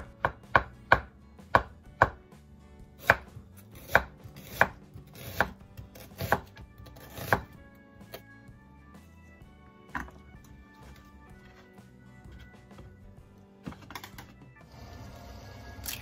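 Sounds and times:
knife slicing vegetables: 3.0 - 8.2.

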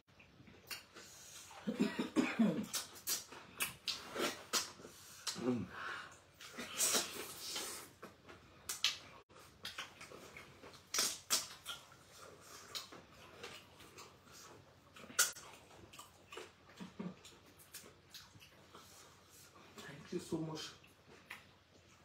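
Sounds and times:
wet eating smacks: 2.6 - 5.7, 6.3 - 18.9
slurping: 2.7 - 8.2
chewing clicks: 8.7 - 14.2.

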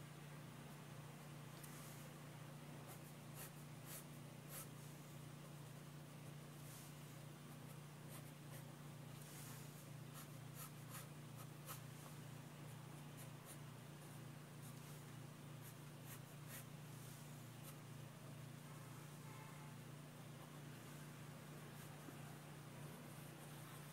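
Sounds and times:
pencil scratching on paper: 2.8 - 4.8, 8.1 - 11.9, 13.2 - 13.6, 14.6 - 17.8.

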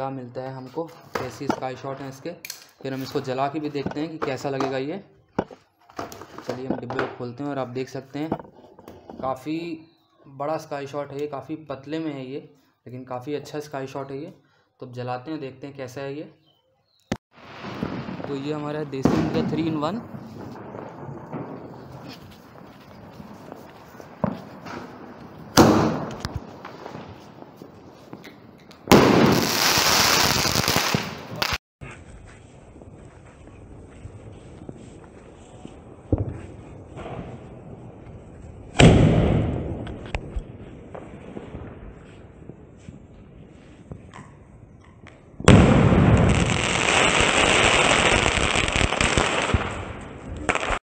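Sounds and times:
firework crackling burst: 17.4 - 28.1, 28.9 - 31.6
firework launch: 17.4 - 28.2, 28.8 - 31.6, 32.7 - 42.9, 45.4 - 50.8
firework shell bang: 24.2 - 27.0.

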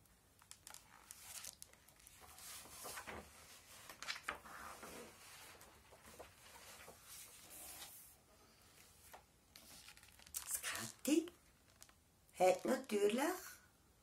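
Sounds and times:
stiff paper page rustling: 0.4 - 8.1, 9.0 - 11.0.

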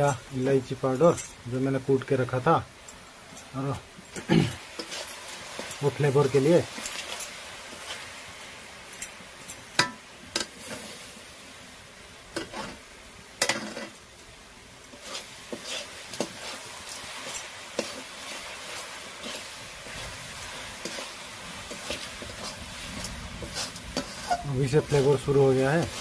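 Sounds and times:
light sizzle: 0.0 - 26.0
metal spatula scraping pan: 4.7 - 8.1, 12.4 - 12.8, 13.4 - 14.0, 14.9 - 26.0.

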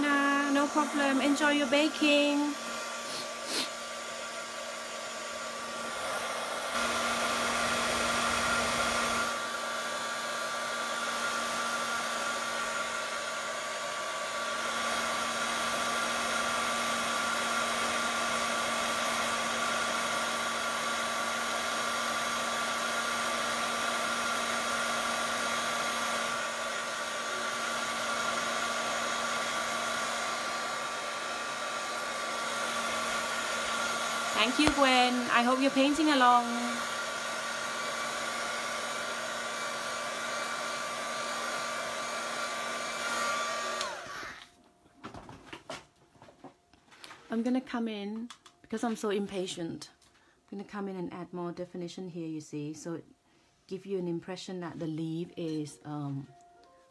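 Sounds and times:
hair dryer blowing: 0.0 - 44.6.

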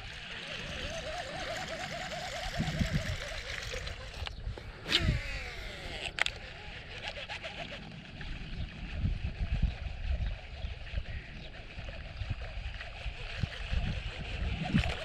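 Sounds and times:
wavering tone: 0.0 - 4.3
fishing reel whirring: 0.0 - 15.0.

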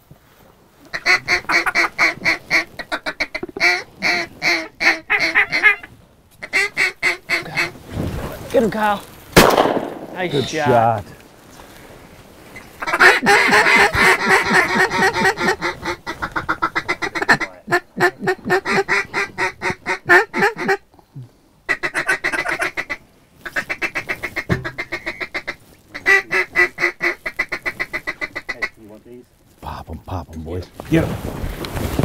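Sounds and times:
duck call rapid quacking: 0.9 - 7.8, 12.8 - 20.8, 21.7 - 28.7.

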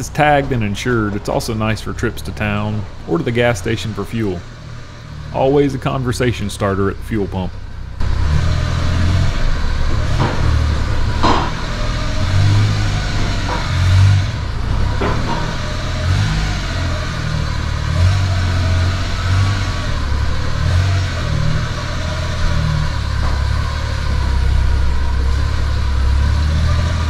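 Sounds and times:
small truck engine running: 0.0 - 27.0.

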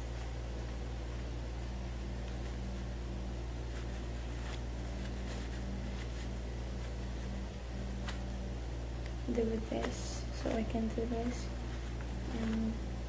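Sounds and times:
electric fan humming: 0.0 - 13.0
cloth being handled: 0.1 - 8.5.

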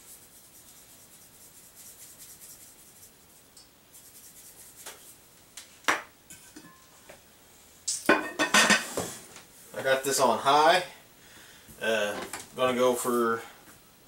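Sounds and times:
salt sprinkling rasp: 0.0 - 5.2.

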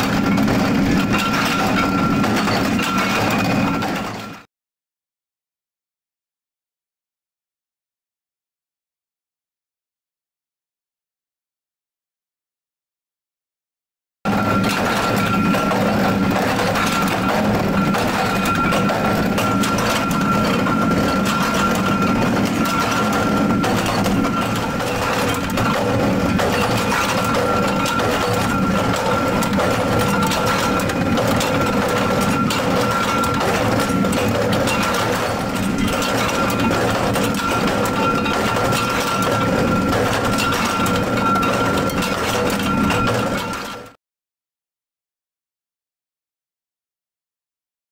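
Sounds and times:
machinery high whine: 0.0 - 4.4, 14.3 - 43.6
knocks and clanks: 0.0 - 4.5, 14.3 - 44.0.

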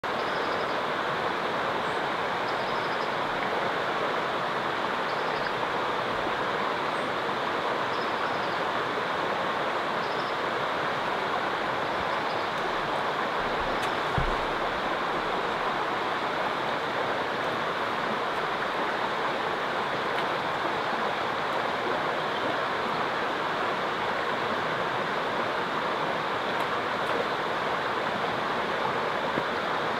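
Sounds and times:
running river water: 0.0 - 29.9
low thump: 14.1 - 14.8.

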